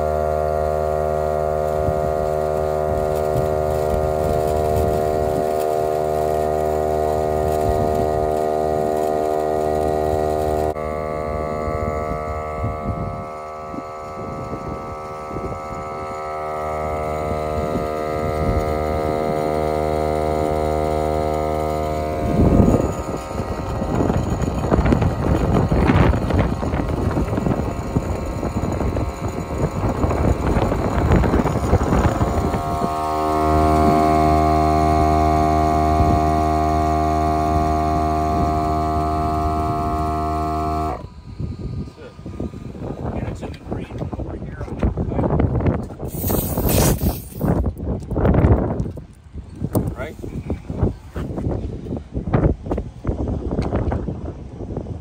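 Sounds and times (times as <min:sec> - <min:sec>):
air inflator humming: 0:00.0 - 0:52.8.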